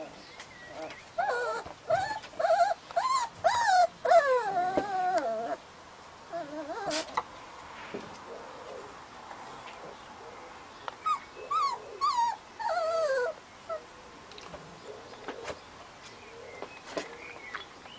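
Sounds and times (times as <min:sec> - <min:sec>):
puppy whining and whimpering: 0:00.7 - 0:05.6, 0:06.3 - 0:07.1, 0:11.0 - 0:13.9.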